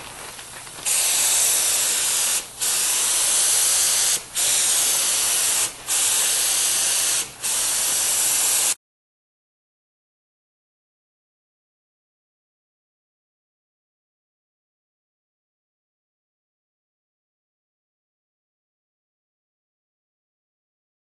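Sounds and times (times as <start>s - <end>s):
paint spray gun hissing: 0.8s - 8.8s.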